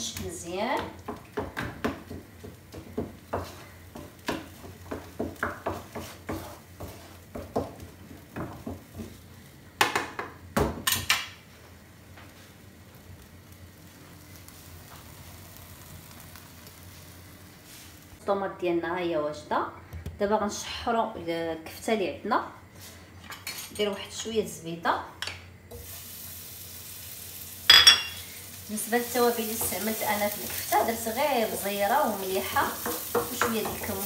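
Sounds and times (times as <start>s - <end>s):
sauce sizzling: 0.0s - 10.4s, 11.1s - 18.2s, 25.6s - 34.0s
wooden spoon scraping frying pan: 1.0s - 9.2s, 29.0s - 34.0s.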